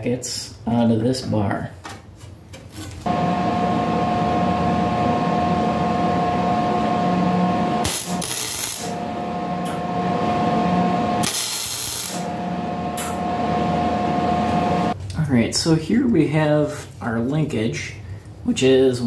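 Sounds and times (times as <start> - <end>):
welding arc crackling buzz: 3.1 - 15.0
welder hiss: 7.8 - 8.9, 11.2 - 12.3.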